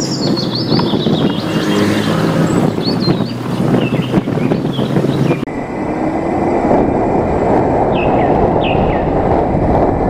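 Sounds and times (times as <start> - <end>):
birds chirping: 0.0 - 5.5, 7.9 - 9.2.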